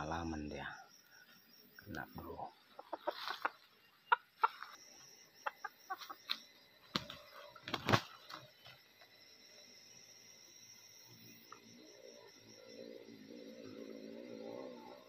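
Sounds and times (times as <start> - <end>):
rooster clucking: 2.8 - 4.7, 5.4 - 6.2.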